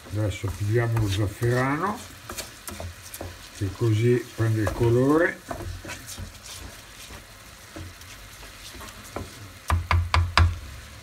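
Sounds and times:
wooden spoon stirring: 0.0s - 10.8s
rice sizzling in oil: 0.0s - 11.0s.

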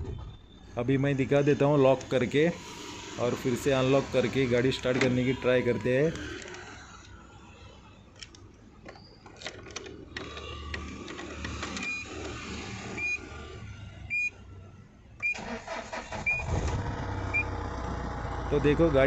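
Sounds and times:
diesel engine starting and idling: 0.8s - 7.3s, 15.2s - 19.0s.

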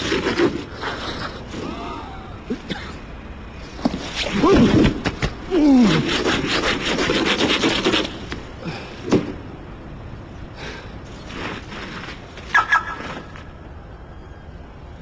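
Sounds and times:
tool scraping snow off car: 0.0s - 1.6s, 5.6s - 8.2s
man groaning: 1.6s - 2.5s, 5.5s - 6.1s.

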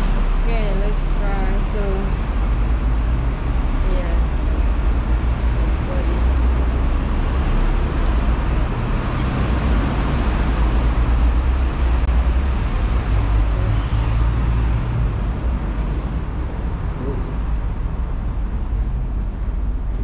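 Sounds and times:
road traffic noise: 0.0s - 20.0s
tram rumbling: 0.0s - 20.0s.

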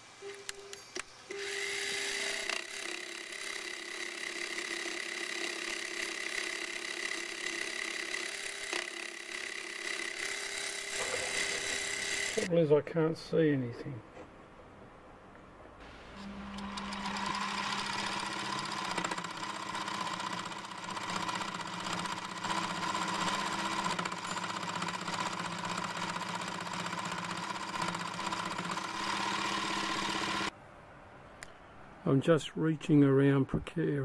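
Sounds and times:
metal lathe whining: 1.3s - 12.5s, 16.1s - 30.5s.

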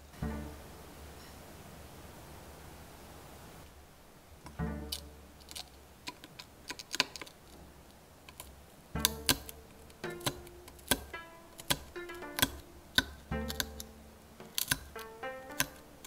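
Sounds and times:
light background music: 0.0s - 1.2s, 4.5s - 6.3s, 8.9s - 16.0s
needle cracking toffee clicks: 4.9s - 16.0s.

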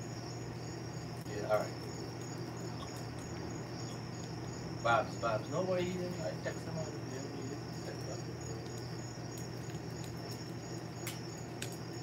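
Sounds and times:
crickets chirping: 0.0s - 12.0s
low steady hum: 0.0s - 12.0s.

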